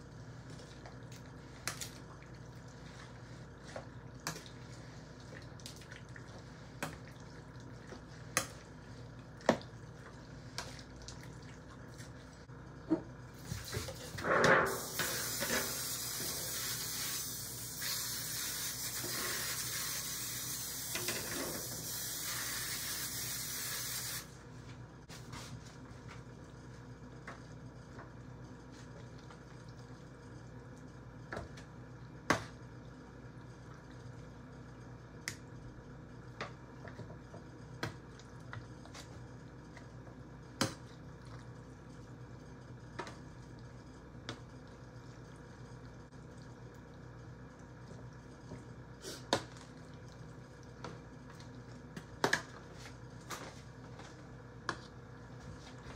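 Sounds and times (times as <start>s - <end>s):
aerosol cooking spray hissing: 14.7s - 21.0s, 21.6s - 24.3s.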